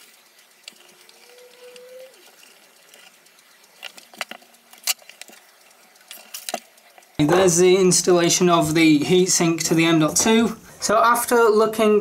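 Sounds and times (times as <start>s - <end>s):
metal parts clicking and tapping: 2.3s - 7.6s.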